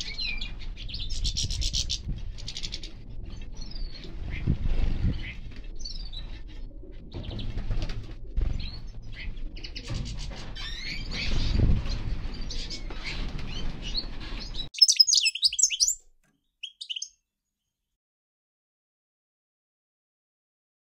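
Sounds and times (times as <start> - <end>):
finches chirping: 14.8 - 16.0, 16.6 - 17.1.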